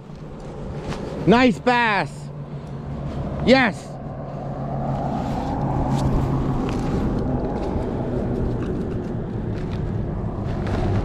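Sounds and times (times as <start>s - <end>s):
handling clicks and rustles: 0.0s - 1.7s, 4.9s - 11.0s
road traffic rumble: 0.0s - 11.0s.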